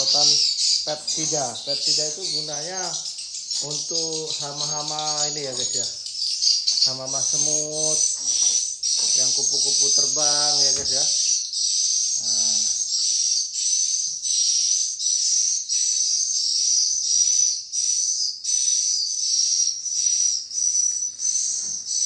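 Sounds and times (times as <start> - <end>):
swiftlets chirping: 0.0 - 13.9.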